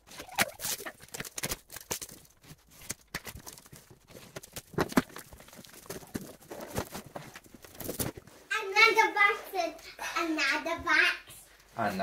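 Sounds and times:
plastic wrapping tearing: 0.1s - 8.2s.

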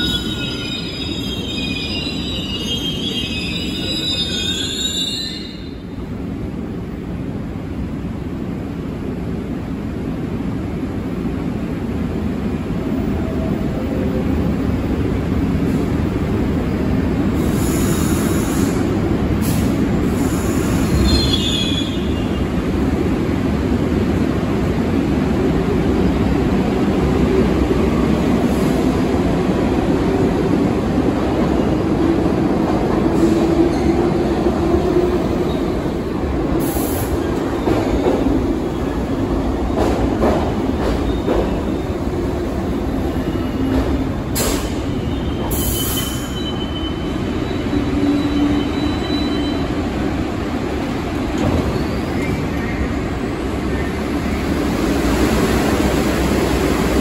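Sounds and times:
high wheel squeal: 0.0s - 5.8s, 44.6s - 49.8s
subway train rumble: 0.0s - 57.0s.

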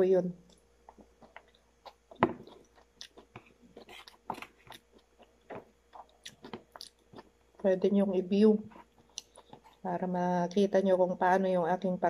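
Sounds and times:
person chewing food: 0.5s - 7.8s, 8.6s - 9.9s.

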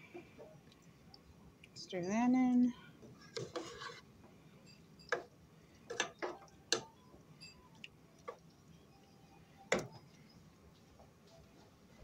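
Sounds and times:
plastic spoon scraping metal pot: 3.3s - 4.0s.

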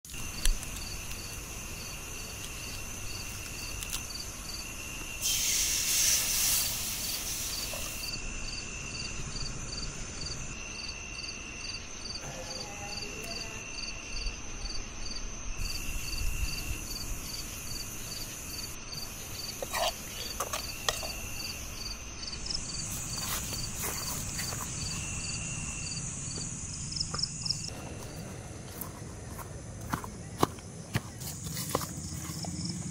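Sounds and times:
insect trilling: 0.1s - 28.8s
insect steady high chirp: 0.1s - 32.9s
loud rush of hiss: 5.2s - 8.2s.

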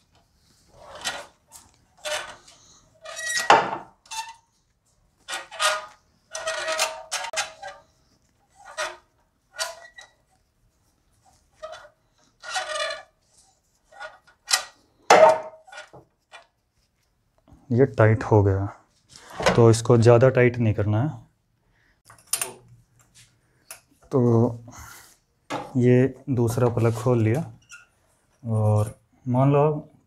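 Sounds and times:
metal scraping and grating: 0.7s - 4.5s, 5.2s - 10.3s, 11.5s - 14.8s.

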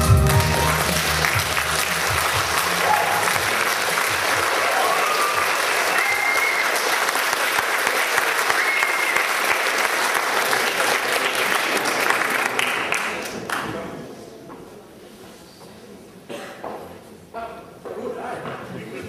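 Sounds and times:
audience applauding: 0.0s - 13.6s
whistles and cheers: 4.5s - 6.9s, 8.4s - 9.4s.

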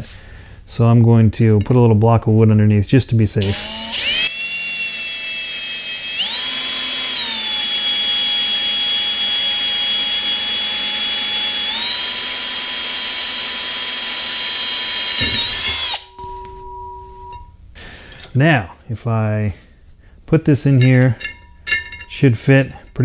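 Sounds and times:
drill drilling through metal: 3.4s - 16.2s.

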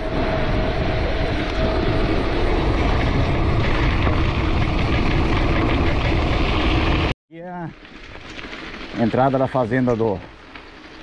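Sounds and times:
wind rushing over microphone: 0.0s - 7.1s.

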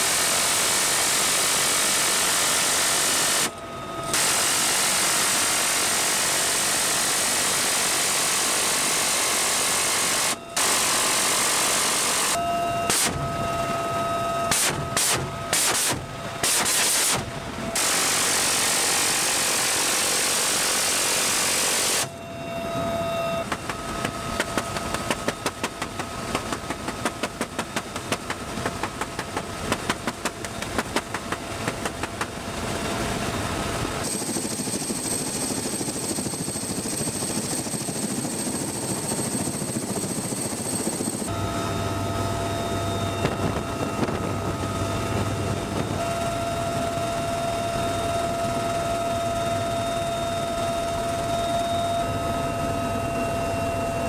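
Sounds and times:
helicopter turbine and rotor drone: 0.0s - 54.0s
machine gun rapid shots: 14.5s - 17.2s.

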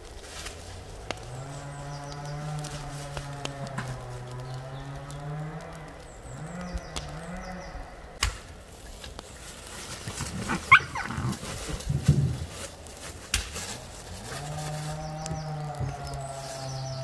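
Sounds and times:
animal calling: 10.0s - 12.1s.

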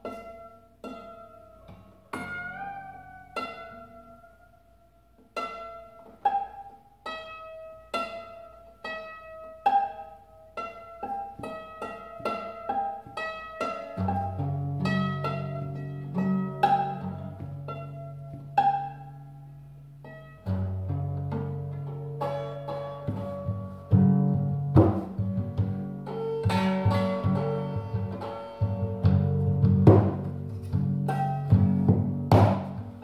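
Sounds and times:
plucked acoustic guitar notes: 0.0s - 33.0s
low guitar bass notes: 13.6s - 33.0s.

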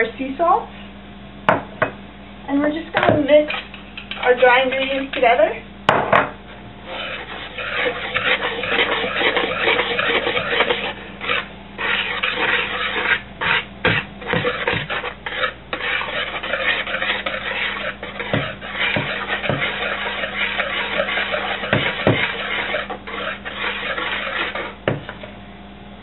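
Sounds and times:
whisk scraping in plastic bowl: 3.3s - 5.4s, 6.8s - 25.2s
whisk knocks: 16.8s - 22.8s, 23.8s - 25.2s.

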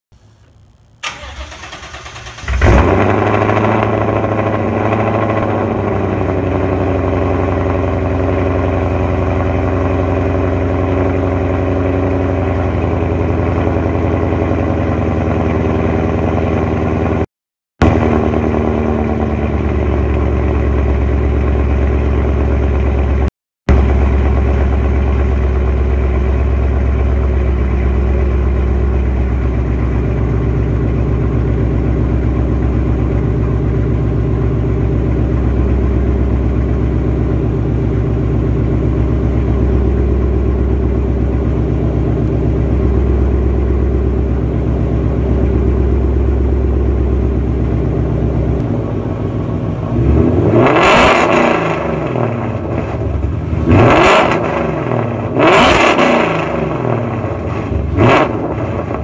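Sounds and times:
car engine idling: 0.2s - 17.2s, 17.8s - 59.0s
engine revving in sharp blips: 49.9s - 59.0s.

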